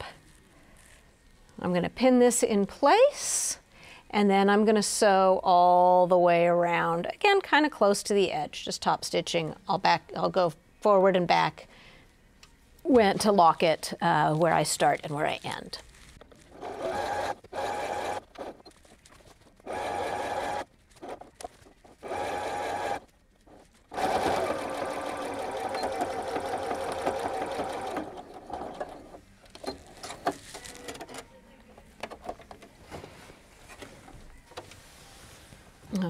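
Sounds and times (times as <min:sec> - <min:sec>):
sewing machine stitching: 0:16.5 - 0:18.8, 0:19.6 - 0:23.1, 0:23.9 - 0:30.8.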